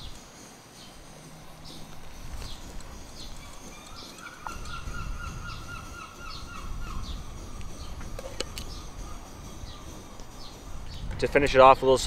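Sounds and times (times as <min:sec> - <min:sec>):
bird chirping: 0:00.0 - 0:12.0
rapid run of bird notes: 0:00.0 - 0:12.0.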